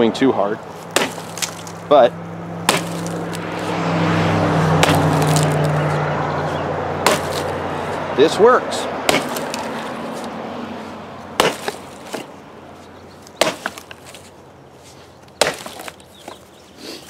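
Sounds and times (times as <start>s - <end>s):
axe chopping into log: 0.8s - 1.8s, 2.6s - 3.7s, 4.7s - 5.9s, 6.5s - 7.6s, 9.0s - 10.3s, 11.4s - 12.4s, 13.3s - 14.3s, 15.3s - 16.4s.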